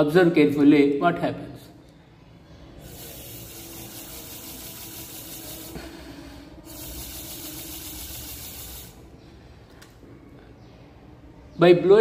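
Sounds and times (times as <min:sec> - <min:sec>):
air hissing from straw rotor: 0:02.8 - 0:09.1.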